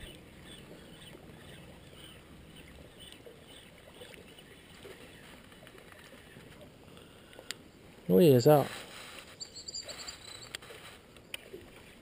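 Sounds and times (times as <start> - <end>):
small ticks and splashes: 0.0 - 7.7
water lapping against hull: 0.0 - 12.0.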